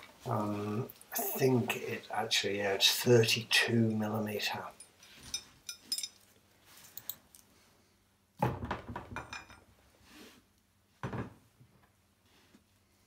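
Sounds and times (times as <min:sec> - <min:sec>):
metal tools clinking on fitting: 0:04.7 - 0:06.3.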